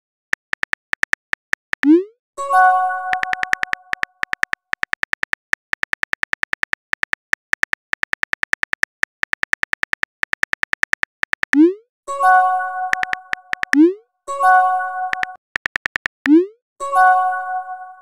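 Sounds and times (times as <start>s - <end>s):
phone keyboard typing clicks: 0.3s - 2.0s, 3.0s - 11.7s, 12.9s - 14.0s, 15.0s - 16.4s.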